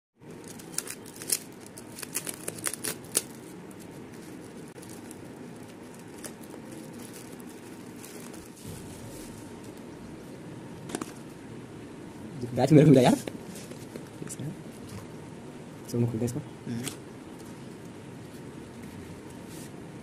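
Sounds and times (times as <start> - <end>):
low background noise: 0.2 - 20.0
foil packaging crinkling: 0.3 - 9.9.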